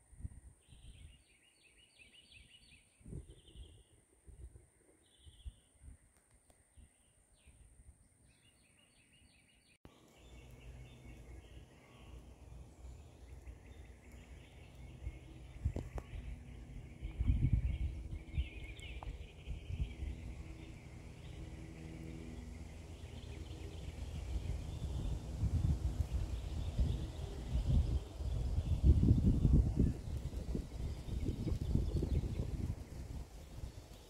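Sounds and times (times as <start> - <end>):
birds chirping: 4.9 - 34.0
low rumbling noise: 10.0 - 34.0.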